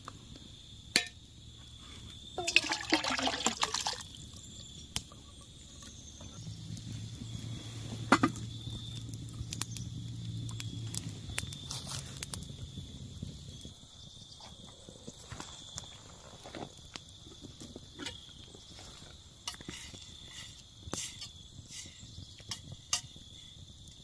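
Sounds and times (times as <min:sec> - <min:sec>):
campfire crackling: 0:00.0 - 0:24.0
metal pot set down: 0:01.0 - 0:01.2, 0:08.1 - 0:08.4
corn sloshing into a pot: 0:02.4 - 0:04.2.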